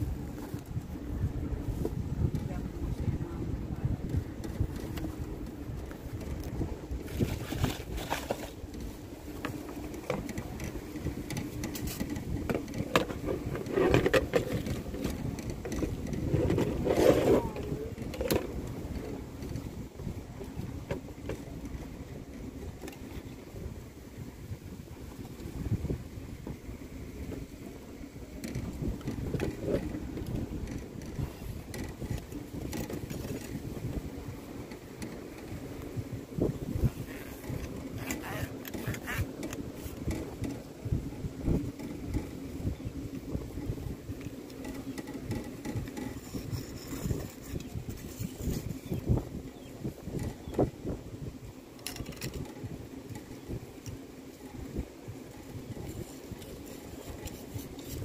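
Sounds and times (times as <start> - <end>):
wind on microphone: 0.0 - 58.0
handling clicks and knocks: 7.5 - 19.6.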